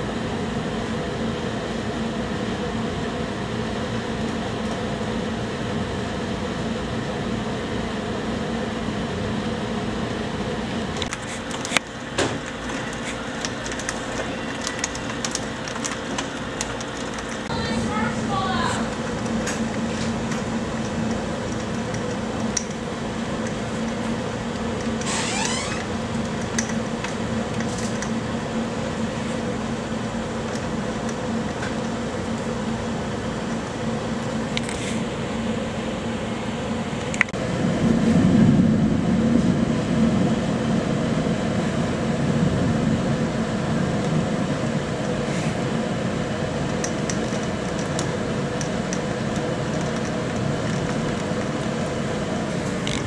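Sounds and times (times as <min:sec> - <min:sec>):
low steady hum: 0:00.0 - 0:53.0
rain rushing: 0:11.2 - 0:34.5, 0:37.4 - 0:53.0
low rumble: 0:37.4 - 0:46.7.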